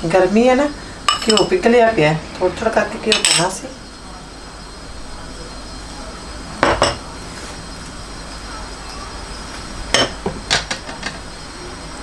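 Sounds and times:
spoon and ceramic bowls clinking: 0:01.1 - 0:01.5, 0:03.1 - 0:03.5.

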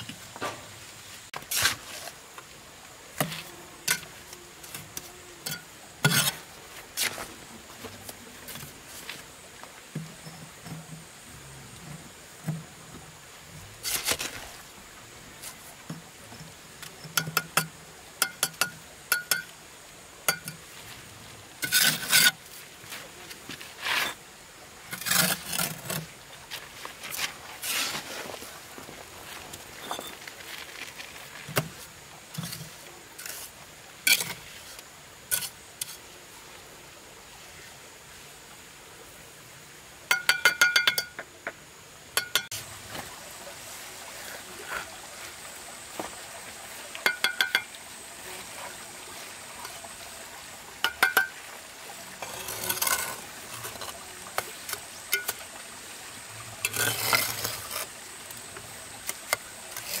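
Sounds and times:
mortar scraping off trowel: 0:21.6 - 0:22.4, 0:52.2 - 0:54.0, 0:56.6 - 0:57.9
trowel tapping bricks: 0:40.1 - 0:41.3, 0:47.0 - 0:47.7, 0:50.8 - 0:51.4.

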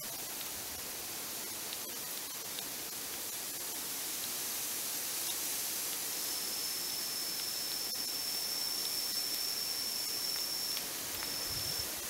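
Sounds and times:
background hiss: 0:00.0 - 0:12.0
thin high-pitched whine: 0:05.1 - 0:12.0.

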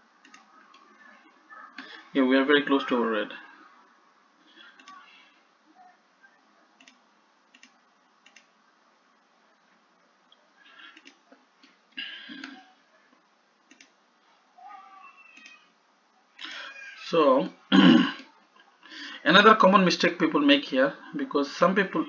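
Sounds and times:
computer mouse clicking: 0:00.2 - 0:00.8, 0:06.8 - 0:08.5, 0:10.9 - 0:11.8, 0:13.7 - 0:14.0.

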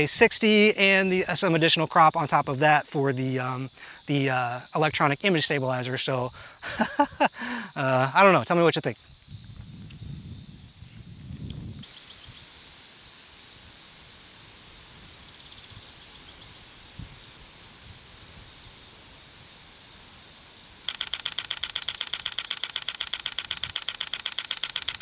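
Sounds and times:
faint outdoor hiss: 0:00.0 - 0:25.0
camera shutter clicking rapidly: 0:20.8 - 0:25.0.

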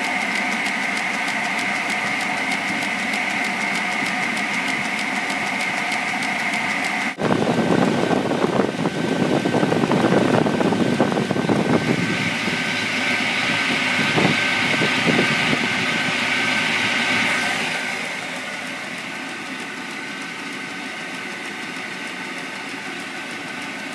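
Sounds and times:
circular saw running: 0:00.0 - 0:23.9.

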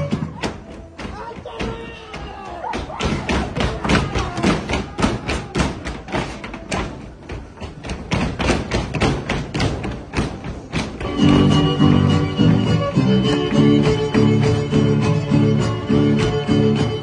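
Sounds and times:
voices: 0:00.0 - 0:06.4
faint music: 0:00.0 - 0:17.0
feet stamping on stage floor: 0:00.0 - 0:17.0.

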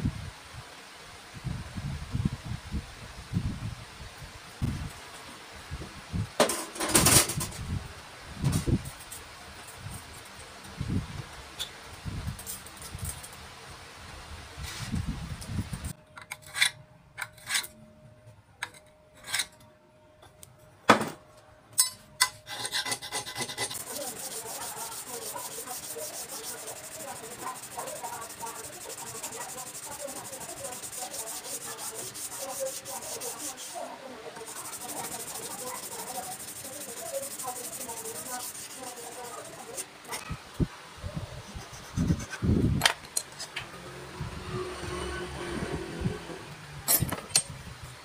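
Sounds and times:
sanding steel blade: 0:22.5 - 0:39.9.

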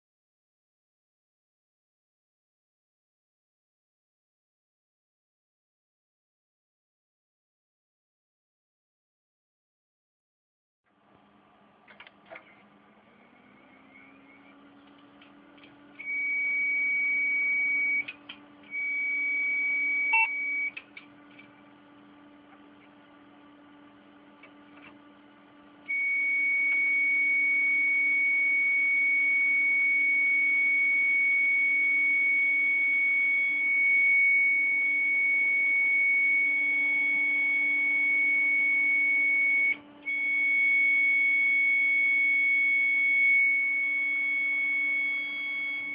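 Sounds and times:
low steady hum: 0:10.9 - 0:45.9
hard drive high-pitched tone: 0:12.4 - 0:45.9
hard drive beeps: 0:13.4 - 0:14.6, 0:15.9 - 0:21.0, 0:25.9 - 0:45.9.

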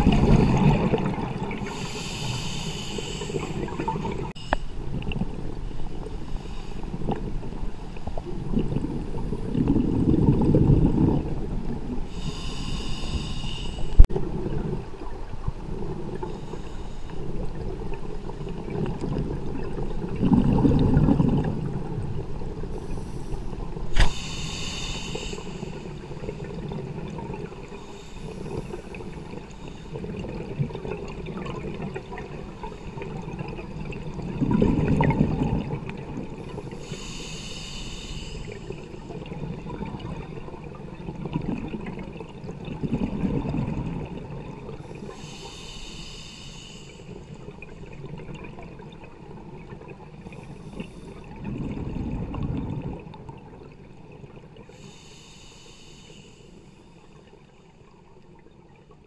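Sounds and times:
exhale bubbling rumble: 0:00.0 - 0:06.1, 0:06.9 - 0:13.4, 0:14.0 - 0:16.3, 0:17.3 - 0:37.1, 0:38.4 - 0:45.2, 0:47.2 - 0:54.7
regulator inhale hiss: 0:01.6 - 0:04.9, 0:06.1 - 0:07.1, 0:12.1 - 0:14.1, 0:16.2 - 0:17.3, 0:22.7 - 0:26.5, 0:27.6 - 0:30.0, 0:36.4 - 0:39.1, 0:44.8 - 0:47.4, 0:50.3 - 0:51.3, 0:54.7 - 0:57.8.

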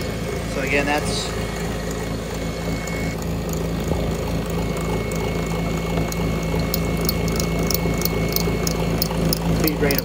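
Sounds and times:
milling machine motor hum: 0:00.0 - 0:10.0
sharp high ticks: 0:06.0 - 0:10.0.

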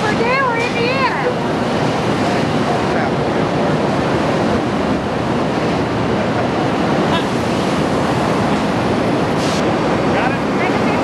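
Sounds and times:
factory floor roar: 0:00.0 - 0:11.0
short high hiss: 0:09.4 - 0:09.7.

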